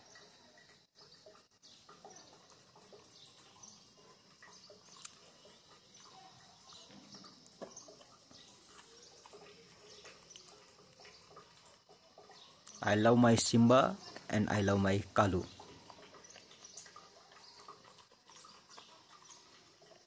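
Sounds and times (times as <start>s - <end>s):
dog chewing bread: 15.6s - 20.0s.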